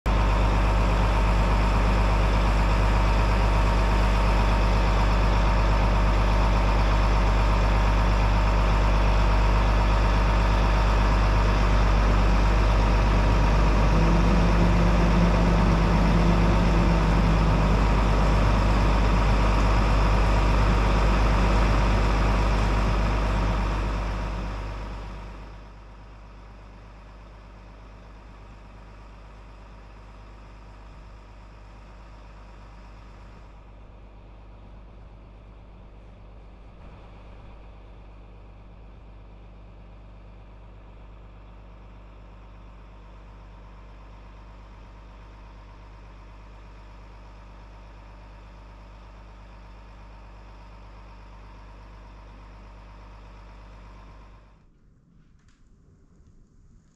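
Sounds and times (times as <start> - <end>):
diesel engine running: 0.0 - 54.7
lower hum: 0.1 - 25.8.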